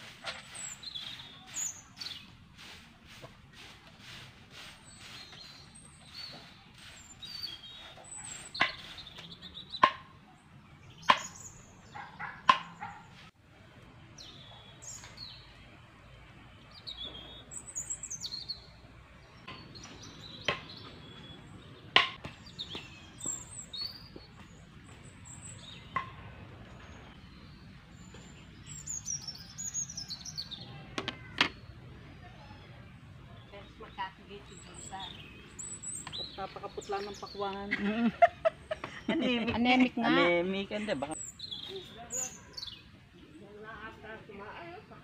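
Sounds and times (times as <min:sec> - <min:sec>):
stick broom sweeping dirt: 0:00.0 - 0:09.4
small birds chirping: 0:00.0 - 0:45.0.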